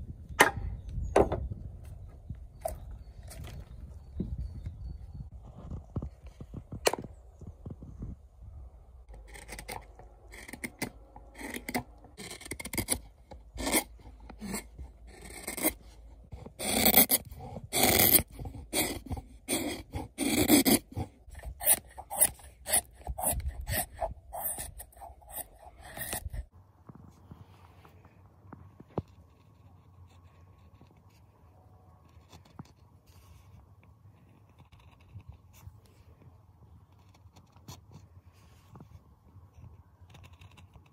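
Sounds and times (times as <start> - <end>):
knife scraping wood: 9.1 - 26.5.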